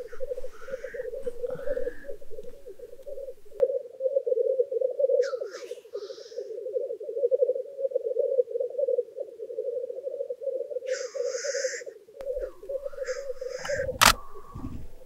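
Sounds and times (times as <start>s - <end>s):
grouse hissing call: 0.0s - 3.6s, 5.1s - 7.6s, 10.8s - 14.9s
grouse bubbling cooing chorus: 0.0s - 15.0s.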